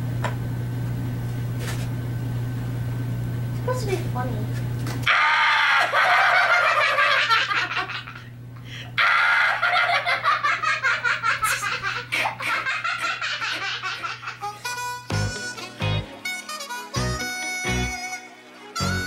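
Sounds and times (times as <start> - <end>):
high-pitched laughter: 5.1 - 8.3, 9.0 - 14.6.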